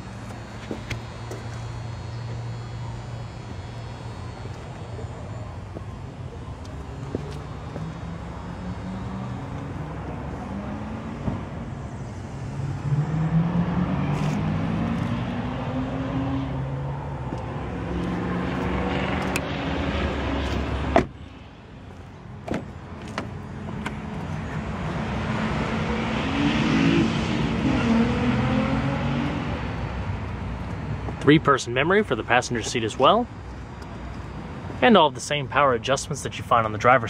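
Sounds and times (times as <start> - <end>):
car engine running: 0.0 - 13.0, 14.1 - 25.8
car door shutting: 20.4 - 21.2, 22.4 - 24.0.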